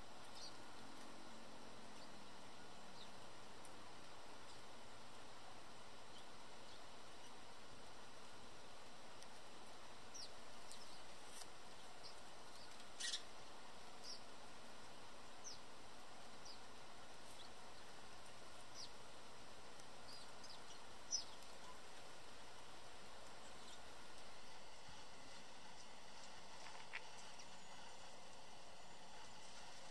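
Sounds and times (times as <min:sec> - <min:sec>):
steady outdoor hiss: 0:00.0 - 0:29.9
sparrows chirping: 0:00.2 - 0:03.3, 0:06.0 - 0:07.5, 0:10.0 - 0:14.4, 0:15.0 - 0:19.1, 0:19.8 - 0:22.0, 0:23.2 - 0:24.0.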